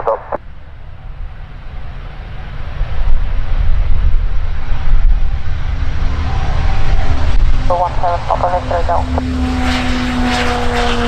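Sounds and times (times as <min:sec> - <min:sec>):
turboprop engines at take-off power: 0:00.0 - 0:11.0.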